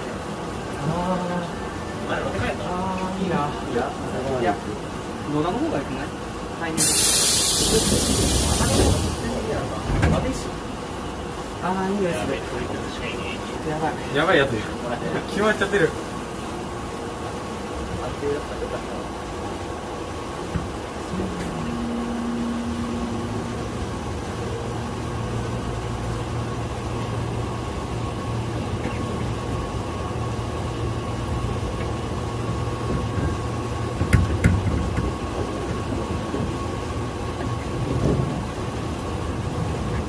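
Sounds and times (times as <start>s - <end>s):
electric train running: 19.8s - 40.0s
low hum: 21.0s - 29.4s.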